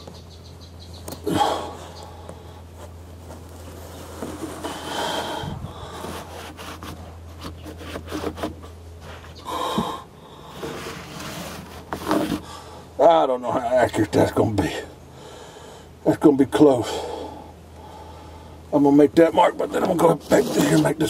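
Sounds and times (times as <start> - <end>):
steady low hum: 0.0 - 21.0
man breathing heavily: 1.2 - 2.9, 4.1 - 6.5, 9.4 - 10.8, 12.4 - 13.0, 15.0 - 16.0, 16.8 - 18.7
body scraping against hull: 2.8 - 9.9, 10.5 - 12.6, 19.4 - 21.0.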